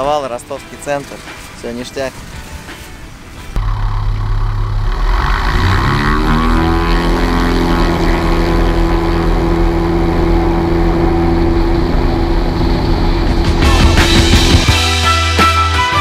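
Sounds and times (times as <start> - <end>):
propeller plane engine droning: 3.5 - 14.7.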